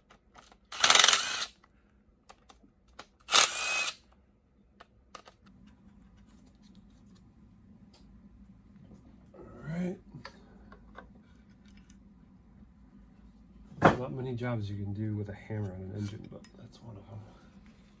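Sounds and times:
cordless power driver running: 0.7 - 1.6, 3.3 - 4.0.

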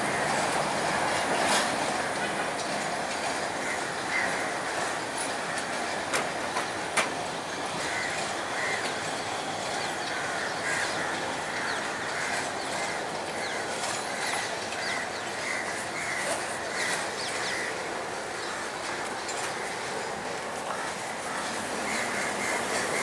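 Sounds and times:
train rumbling slowly: 0.0 - 23.0
birds calling: 3.4 - 5.0, 7.4 - 23.0.

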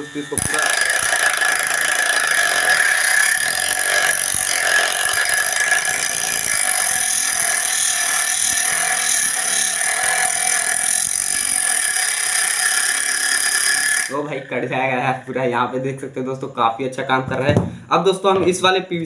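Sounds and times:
angle grinder cutting steel: 0.0 - 15.1.

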